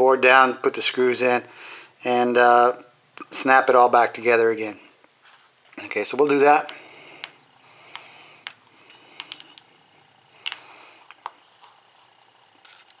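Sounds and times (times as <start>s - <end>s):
clicks and taps on electronic device: 6.2s - 9.7s.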